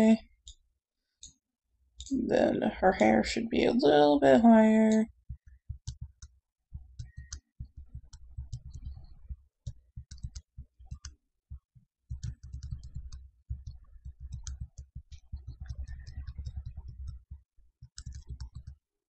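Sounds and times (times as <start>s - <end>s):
computer mouse clicking: 7.0s - 9.4s, 10.0s - 11.2s, 12.1s - 18.8s.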